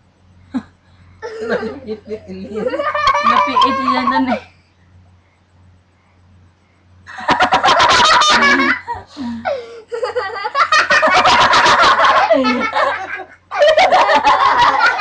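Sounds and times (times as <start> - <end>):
low steady hum: 0.0 - 15.0
people laughing loudly: 1.3 - 4.4, 7.1 - 9.1, 9.9 - 15.0.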